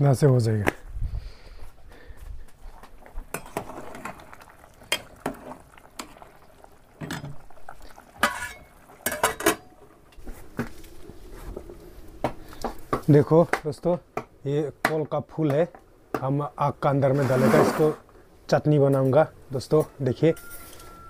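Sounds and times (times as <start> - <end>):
metal utensil clinking on pot: 8.2 - 9.7.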